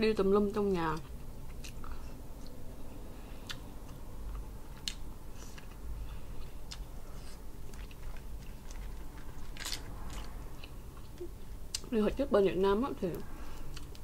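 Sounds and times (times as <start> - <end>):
person chewing: 1.4 - 2.6, 3.3 - 11.9, 13.5 - 14.0.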